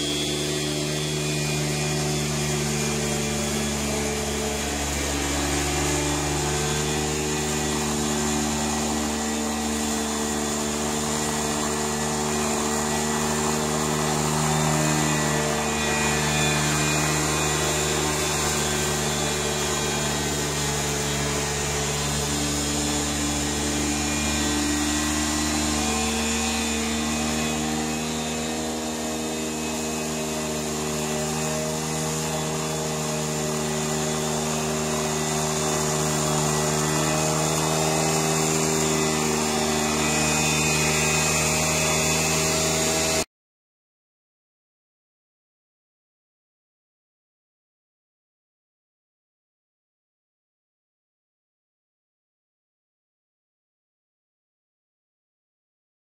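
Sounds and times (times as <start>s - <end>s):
lawn mower engine cutting grass: 0.0s - 43.3s.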